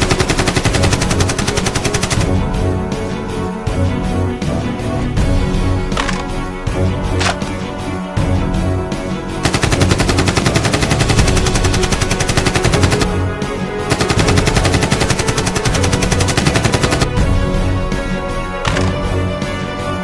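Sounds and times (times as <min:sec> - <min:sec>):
automatic gunfire bursts: 0:00.0 - 0:02.3, 0:09.4 - 0:13.2, 0:13.9 - 0:17.2
background music: 0:00.0 - 0:20.0.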